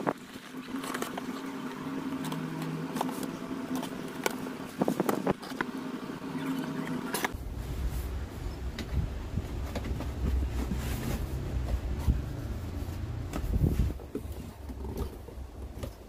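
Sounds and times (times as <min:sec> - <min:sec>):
steady background hum: 0:00.0 - 0:16.0
low rumble: 0:07.4 - 0:15.8
cardboard flaps rustling: 0:09.0 - 0:16.0.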